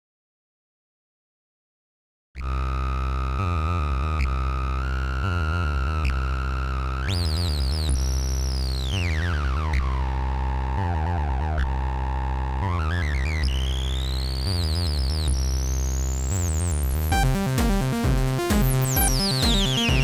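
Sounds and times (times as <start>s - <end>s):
repeating synth bass sequence: 2.9s - 20.0s
high sweeping synth tone: 16.4s - 20.0s.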